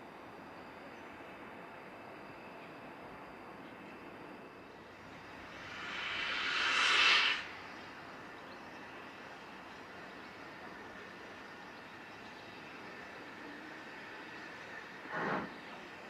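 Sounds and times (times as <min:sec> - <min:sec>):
steam hissing from locomotive: 0:04.8 - 0:10.0, 0:10.8 - 0:16.0.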